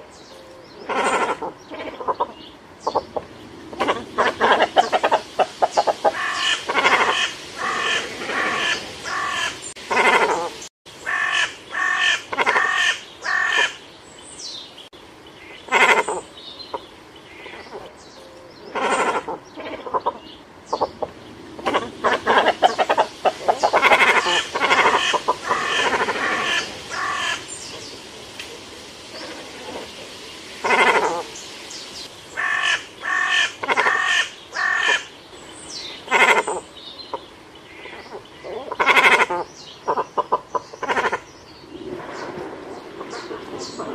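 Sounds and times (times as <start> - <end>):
cormorants calling harshly: 0.8 - 3.1, 3.8 - 13.8, 15.6 - 16.3, 18.6 - 21.0, 21.6 - 27.5, 30.6 - 31.4, 32.3 - 35.2, 35.9 - 36.7, 37.7 - 41.3.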